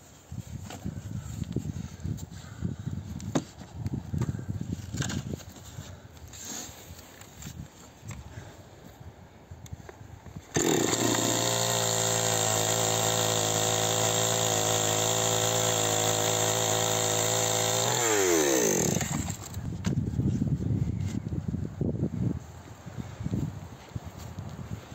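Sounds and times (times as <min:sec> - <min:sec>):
chainsaw cutting logs: 0:10.5 - 0:19.6.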